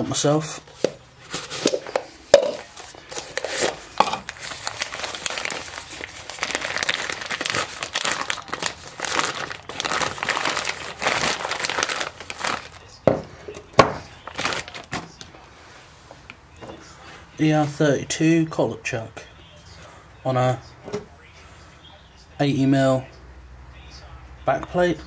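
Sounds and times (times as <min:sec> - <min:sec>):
plastic bag crinkling: 0:01.3 - 0:13.2, 0:13.8 - 0:15.2.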